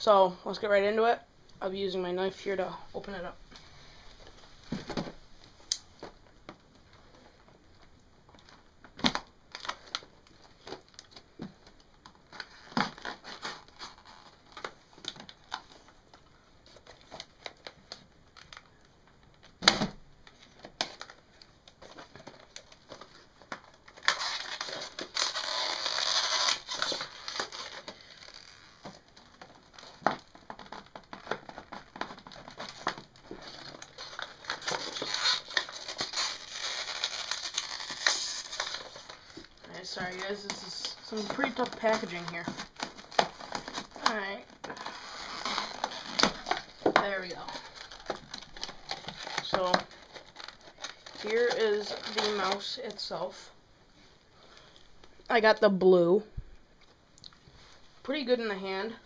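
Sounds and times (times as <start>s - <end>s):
loud plastic crinkling: 8.4s - 53.4s
knife cutting plastic packaging: 23.5s - 29.0s, 29.8s - 52.8s.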